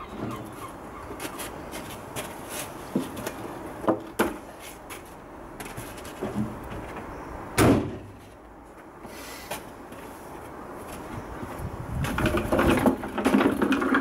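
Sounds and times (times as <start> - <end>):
tailgate slamming shut: 7.6 - 8.2.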